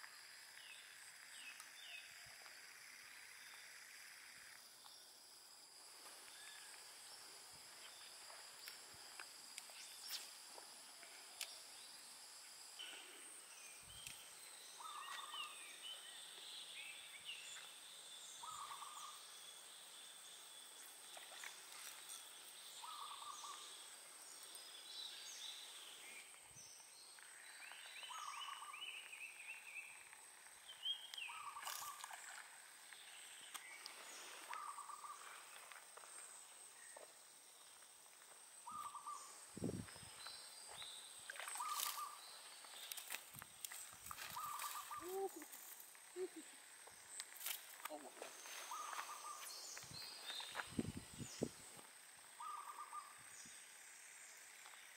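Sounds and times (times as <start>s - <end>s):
high insect drone: 0.0s - 54.9s
small bird chirps: 13.8s - 19.5s, 27.4s - 35.4s, 38.6s - 39.4s, 40.1s - 51.5s, 52.4s - 53.7s.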